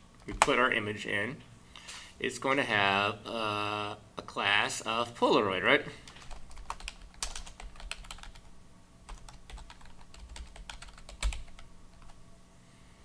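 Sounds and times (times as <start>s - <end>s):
computer keyboard typing: 6.1s - 8.5s, 9.1s - 12.2s.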